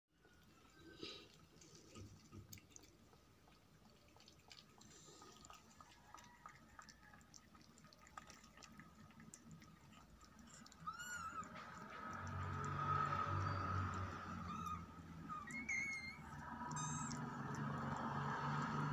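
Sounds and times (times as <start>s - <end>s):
kitten lapping milk: 0.2s - 18.9s
kitten squeaky call: 10.8s - 11.5s, 14.4s - 17.2s.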